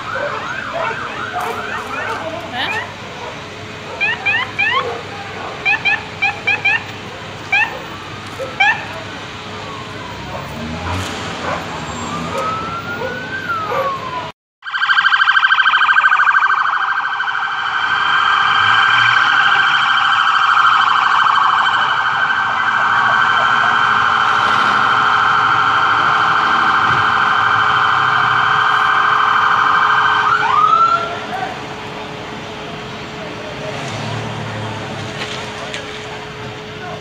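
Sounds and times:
wailing police siren: 0.0 - 37.0
siren in fast warble: 4.0 - 4.9, 5.6 - 7.9, 11.6 - 31.3.

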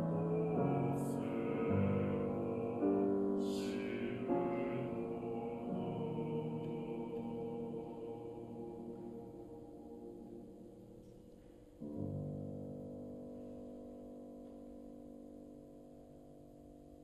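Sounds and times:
male choir singing held chords: 0.0 - 11.1.

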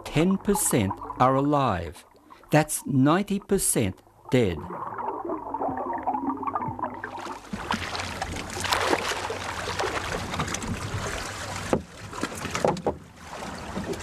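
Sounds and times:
water splashing around boat: 4.2 - 14.0.

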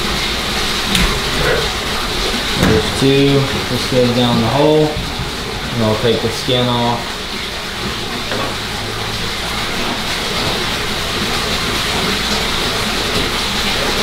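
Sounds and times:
running water rushing: 0.0 - 14.0.

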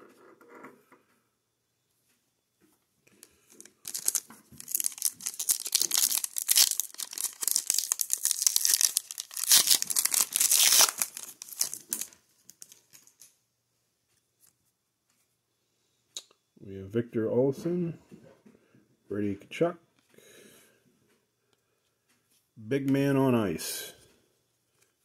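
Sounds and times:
foil wrapper tearing and crinkling: 3.6 - 13.3.

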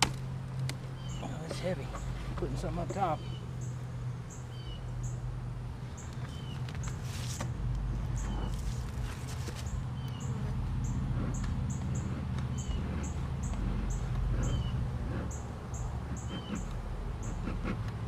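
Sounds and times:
honeybees humming: 0.0 - 18.0
lower bird chirp: 0.9 - 2.2, 3.0 - 5.3, 5.9 - 7.0, 8.0 - 8.8, 9.6 - 17.4.

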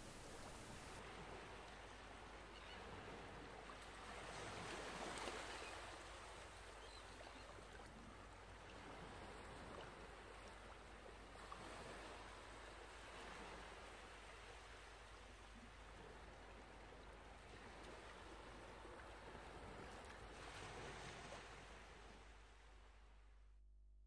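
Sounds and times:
low steady hiss: 0.0 - 2.6.

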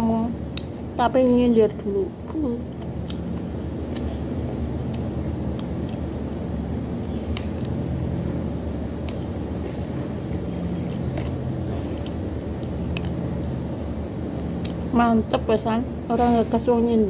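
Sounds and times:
low machine hum: 0.0 - 17.0
wet chewing and lip-smacking: 0.5 - 1.4, 2.6 - 14.9.

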